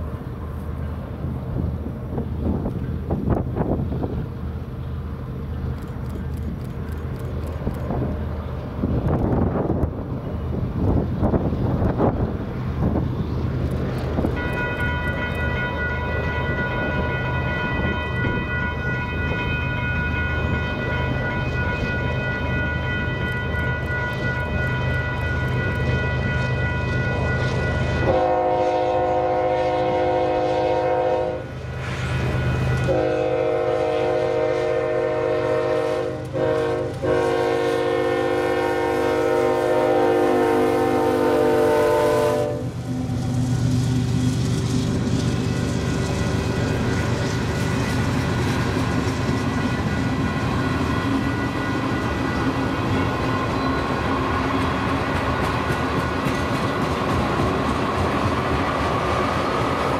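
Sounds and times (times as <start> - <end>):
locomotive air horn blasts: 27.8 - 31.5, 32.3 - 43.2.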